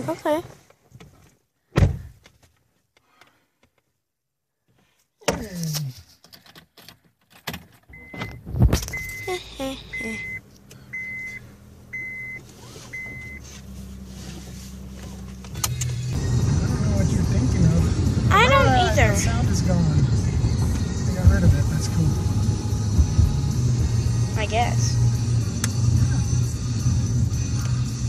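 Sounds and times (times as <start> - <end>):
car warning chime beeping: 7.9 - 13.5
car engine running: 8.0 - 28.0.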